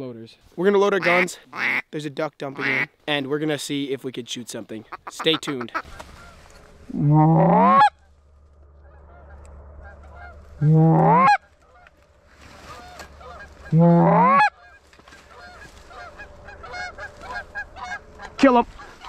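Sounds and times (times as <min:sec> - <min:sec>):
goose call honks rising in pitch: 0:01.0 - 0:01.8, 0:02.6 - 0:02.9, 0:04.9 - 0:08.0, 0:08.7 - 0:12.1, 0:12.7 - 0:19.0.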